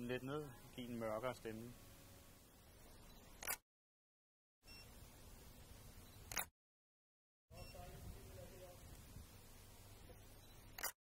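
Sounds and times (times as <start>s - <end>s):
faint background hiss: 0.0s - 3.4s, 4.7s - 6.4s, 7.6s - 10.8s
camera shutter click: 3.4s - 3.6s, 6.3s - 6.5s, 10.7s - 11.0s.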